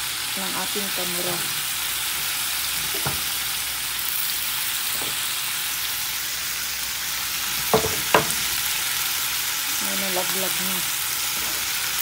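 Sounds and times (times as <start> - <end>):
food sizzling in a pan: 0.0 - 12.0
faint knock: 7.7 - 8.4.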